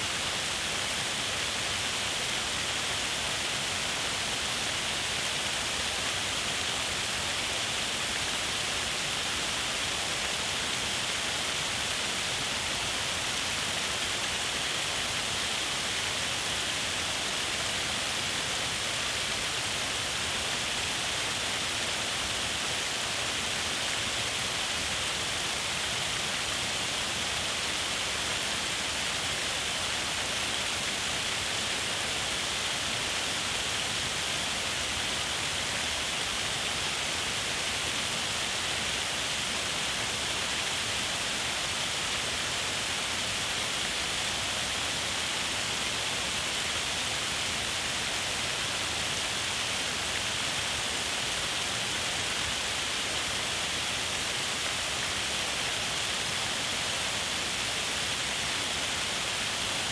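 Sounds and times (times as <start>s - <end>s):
water rushing over rock ledge: 0.0s - 59.9s.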